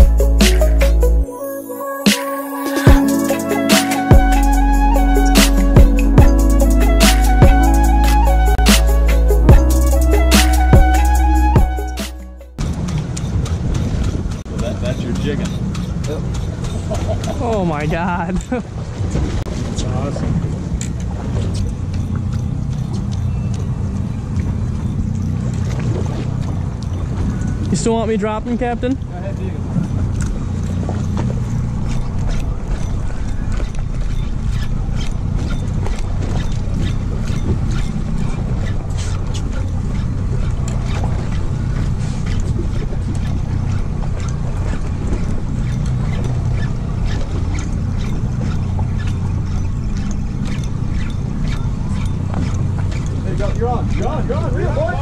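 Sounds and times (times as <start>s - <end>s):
boat engine idling: 2.7s - 55.0s
sharp ticks: 12.7s - 17.6s
wind on microphone: 29.0s - 55.0s.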